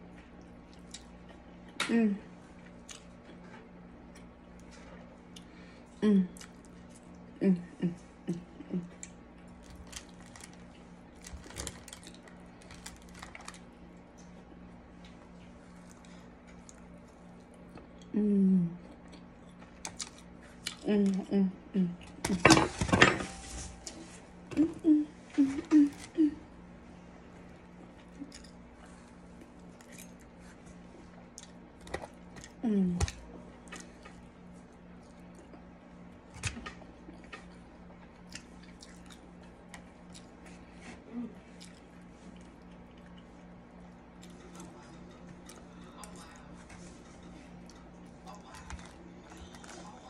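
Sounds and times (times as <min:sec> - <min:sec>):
soft chewing: 0:00.0 - 0:21.3, 0:23.7 - 0:50.0
faint steady hum: 0:00.0 - 0:50.0
falling vocal hum: 0:07.4 - 0:08.9, 0:18.1 - 0:18.8, 0:20.9 - 0:22.0, 0:24.5 - 0:26.6.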